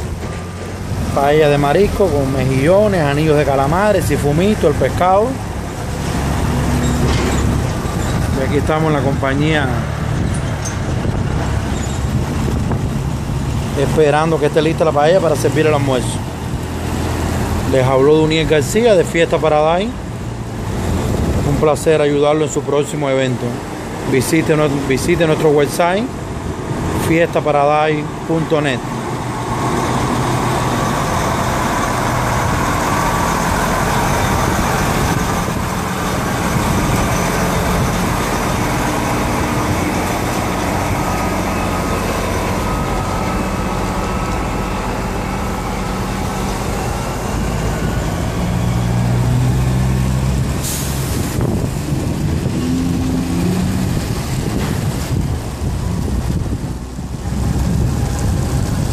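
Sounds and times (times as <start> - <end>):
diesel truck engine droning: 0.0 - 58.9
rushing noise: 0.0 - 58.9.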